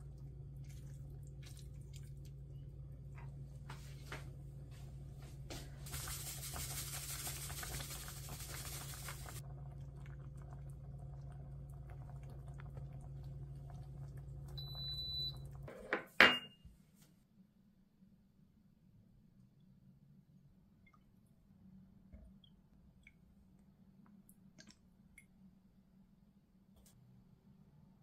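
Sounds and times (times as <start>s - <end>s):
cooktop low hum: 0.0s - 28.0s
hissing haze: 5.8s - 9.4s
ceramic pitcher knocking on counter: 15.8s - 16.5s.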